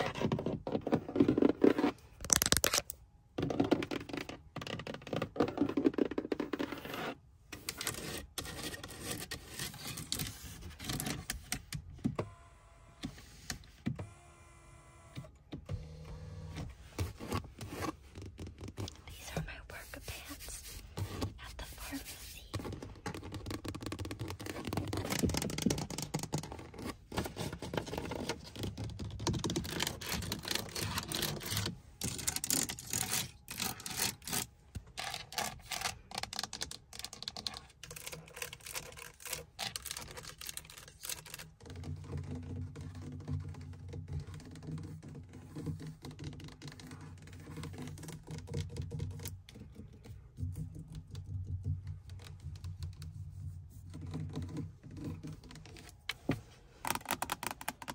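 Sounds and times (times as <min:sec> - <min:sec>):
fingernails tapping and scratching: 0:20.2 - 0:53.1, 0:53.8 - 0:57.9.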